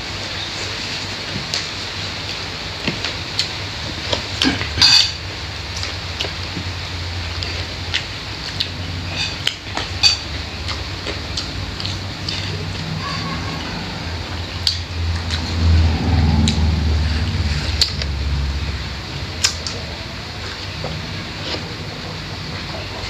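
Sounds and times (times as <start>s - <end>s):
steady low hum: 0.0s - 23.0s
chewing and crunching: 7.3s - 12.9s.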